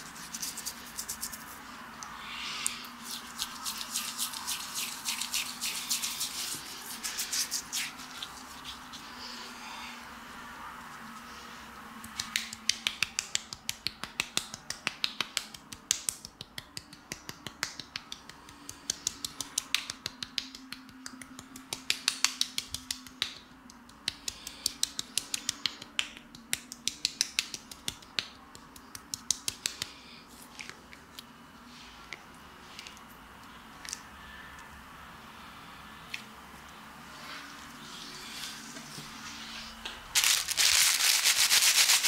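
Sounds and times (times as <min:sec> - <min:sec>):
fingertips tapping wet skin: 0:00.0 - 0:09.0, 0:12.0 - 0:30.0.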